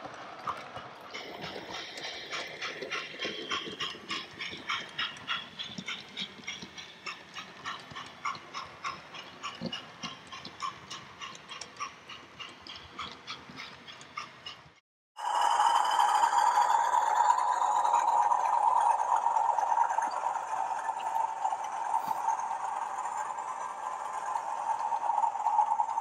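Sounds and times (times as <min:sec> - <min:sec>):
faint steady running noise: 0:00.0 - 0:26.0
model train wheels clicking: 0:00.0 - 0:26.0.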